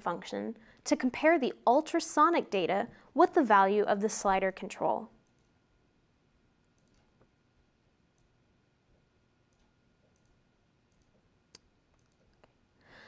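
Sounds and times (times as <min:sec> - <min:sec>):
computer mouse clicks: 0:05.2 - 0:05.6, 0:06.6 - 0:07.3, 0:09.5 - 0:12.6.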